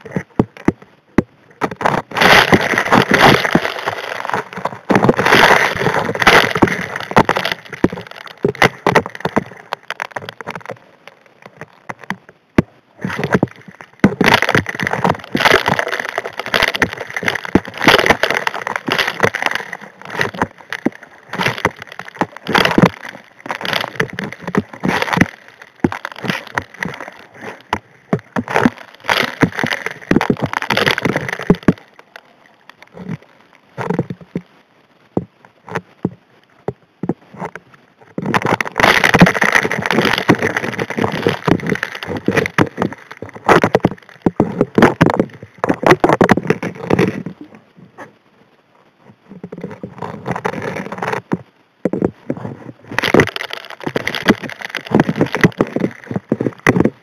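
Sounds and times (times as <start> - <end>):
rushing water underwater: 0.0 - 57.0.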